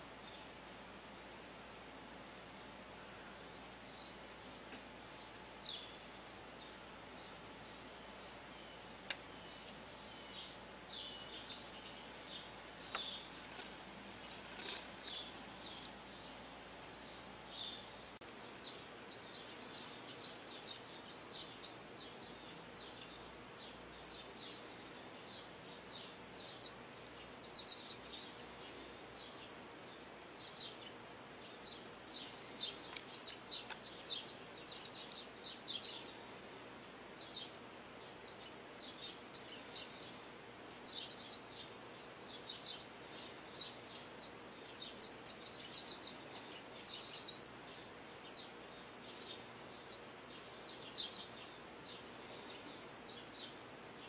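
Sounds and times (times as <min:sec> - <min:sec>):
faint background noise: 0:00.0 - 0:54.0
small songbirds chirping: 0:00.0 - 0:54.0.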